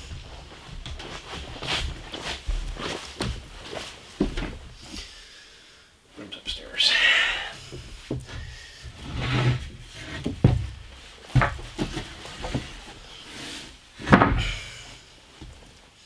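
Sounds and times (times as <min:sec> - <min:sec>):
board sliding along floor: 0:08.1 - 0:10.6, 0:11.4 - 0:14.4
wooden boards knocking and scraping: 0:08.1 - 0:12.9, 0:14.0 - 0:14.7.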